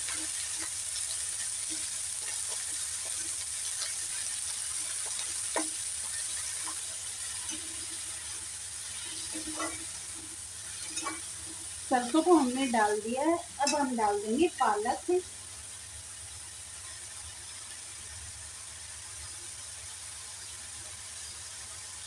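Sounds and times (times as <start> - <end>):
metal spatula scraping a pan: 0.0 - 13.0
greens sizzling in hot oil: 0.0 - 22.0.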